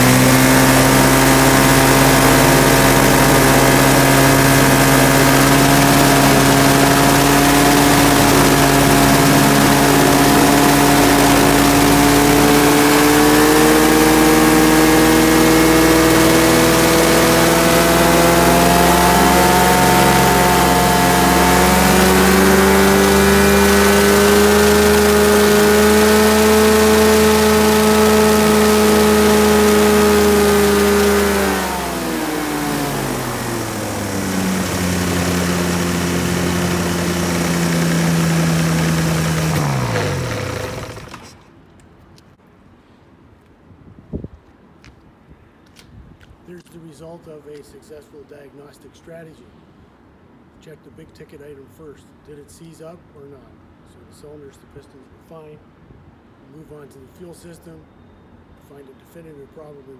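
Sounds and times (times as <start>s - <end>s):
two-stroke engine running: 0.0s - 41.5s.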